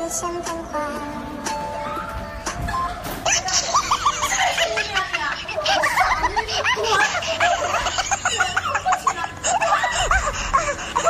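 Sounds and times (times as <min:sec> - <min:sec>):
people laughing and giggling: 0:02.4 - 0:11.0.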